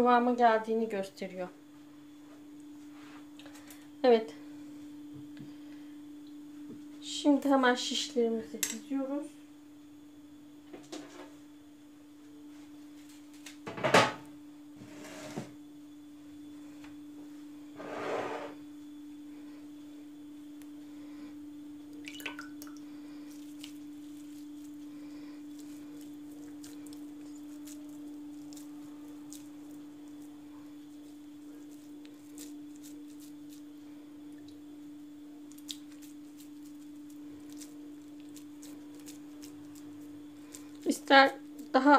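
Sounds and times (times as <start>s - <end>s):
steady low hum: 0.0s - 41.9s.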